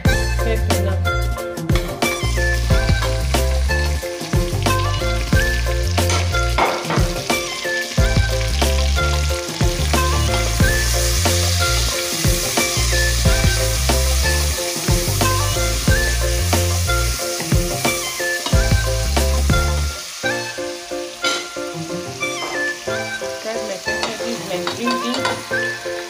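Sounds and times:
music with bass beat: 0.0s - 19.9s
vegetables sizzling in oil: 1.2s - 26.0s.

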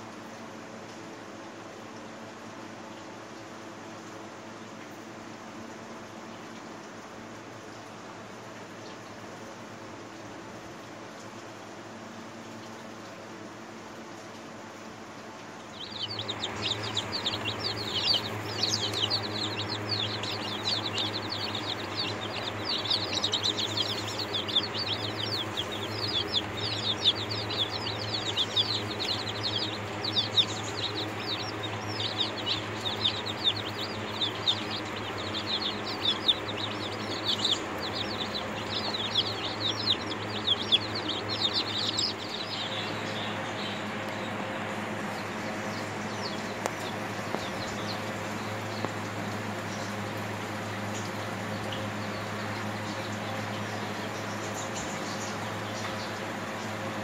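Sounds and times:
chicks peeping: 15.1s - 57.0s
low hum: 15.4s - 57.0s.

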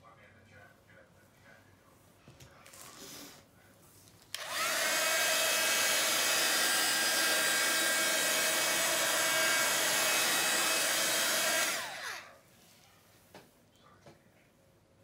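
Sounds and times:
hot-air blower motor whine: 4.3s - 12.4s.

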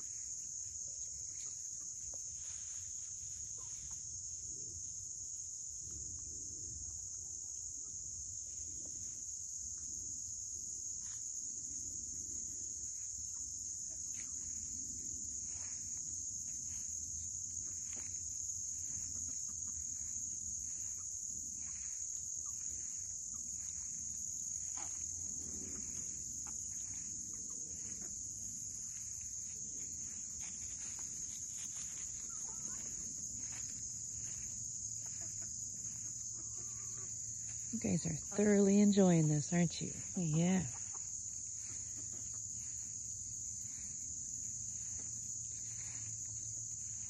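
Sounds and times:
crickets chirping: 0.0s - 47.0s
chickens clucking: 16.2s - 39.2s, 40.0s - 46.8s.

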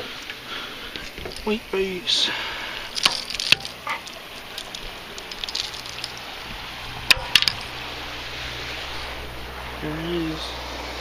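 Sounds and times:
steady background hiss: 0.0s - 11.0s
fishing tackle clicks and knocks: 3.0s - 6.2s.

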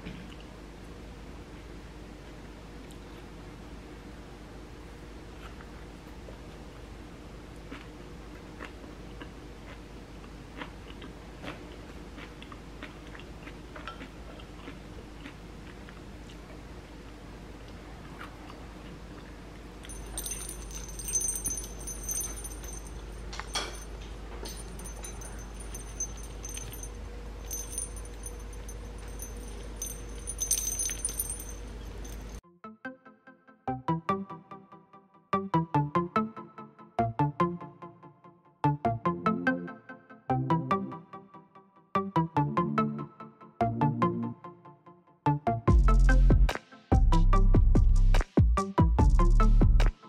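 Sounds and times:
small metal bell jingling: 19.9s - 32.4s.

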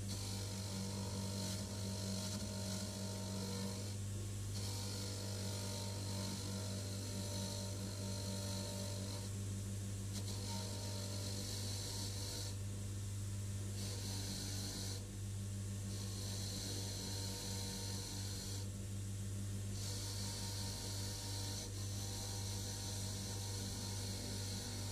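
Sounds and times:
bench grinder motor humming: 0.0s - 9.4s, 10.1s - 12.6s, 13.7s - 15.1s, 15.8s - 18.7s, 19.8s - 24.9s.

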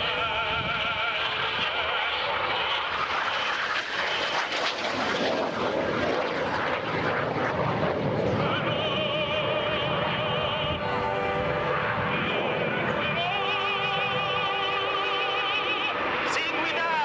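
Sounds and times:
operatic voice singing: 0.0s - 2.3s, 8.3s - 17.0s
jet aircraft flying: 0.0s - 17.0s.

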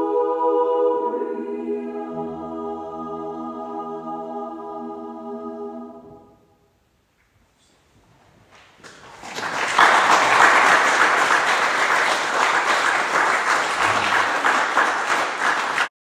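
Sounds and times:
audience applauding: 8.8s - 15.9s.

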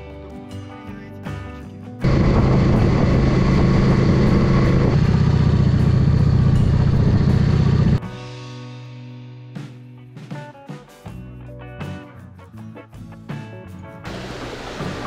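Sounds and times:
motorcycle engine running: 2.0s - 8.0s
wind rush over microphone: 2.0s - 8.0s.

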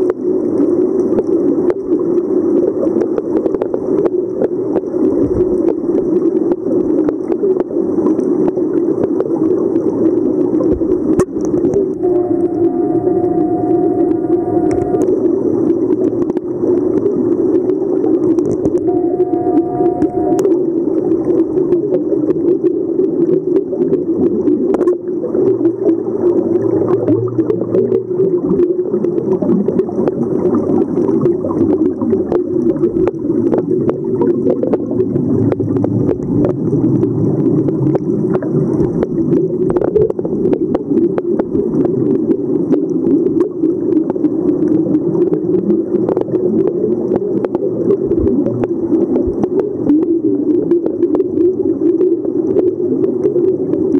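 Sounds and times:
muffled underwater noise: 0.0s - 53.9s
regulator exhaust bubbles gurgling: 0.0s - 53.9s.

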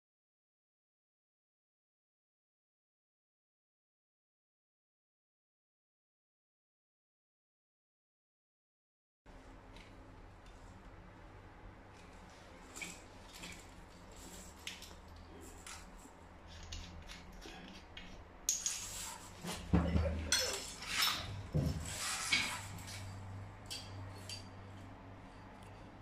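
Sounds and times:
metal shower hose clinking: 12.6s - 24.6s.

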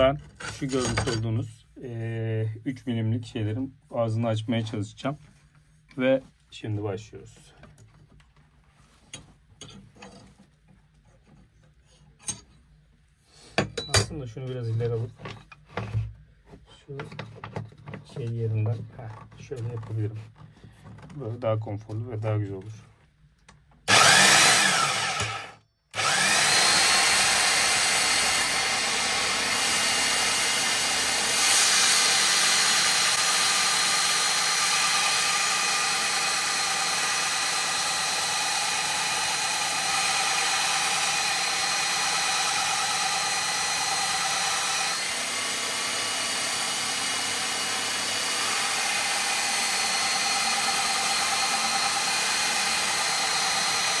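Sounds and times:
belt sander motor whine: 23.9s - 54.0s.

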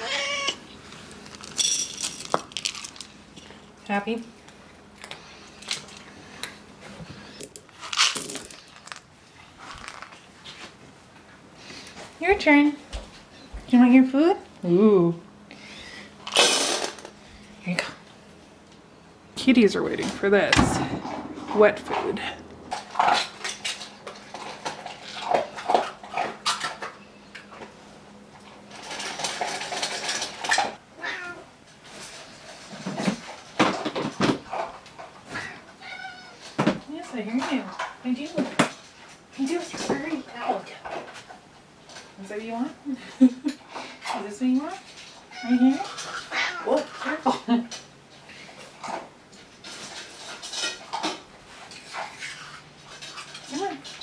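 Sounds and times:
cats meowing: 0.0s - 0.8s, 31.0s - 31.5s, 35.4s - 36.4s, 45.3s - 46.9s
cat crunching dry food: 0.9s - 3.5s.

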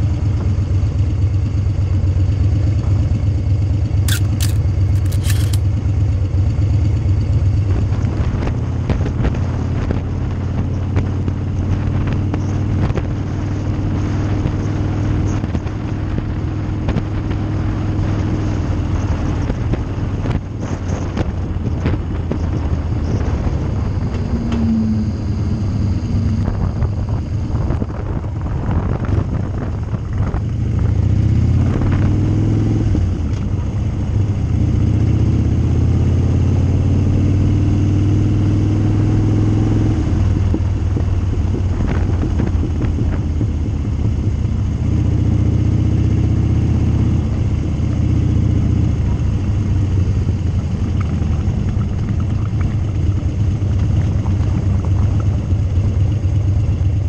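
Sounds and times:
motorcycle engine running: 0.0s - 57.0s
wind and road noise: 0.0s - 57.0s
sharp clicks: 4.1s - 5.7s.

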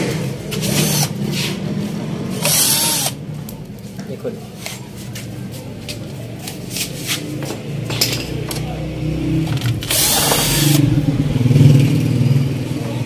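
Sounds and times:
cordless drill motor running: 0.8s - 1.1s, 2.4s - 3.2s, 9.6s - 10.8s.

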